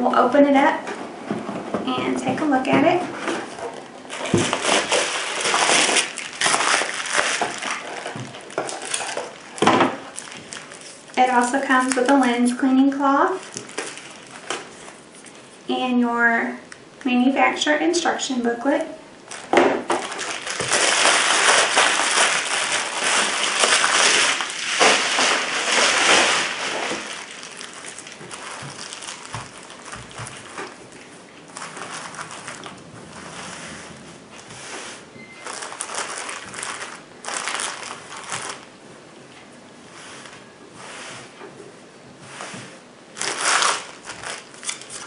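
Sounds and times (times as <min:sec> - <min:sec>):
plastic bag rustling: 0:00.4 - 0:15.7, 0:19.2 - 0:41.4, 0:42.2 - 0:45.0
cloth bag rustling: 0:03.2 - 0:12.6, 0:13.3 - 0:15.4, 0:19.3 - 0:38.8, 0:42.4 - 0:45.0
bubble wrap crackling: 0:03.2 - 0:15.6, 0:19.2 - 0:40.6, 0:42.5 - 0:45.0.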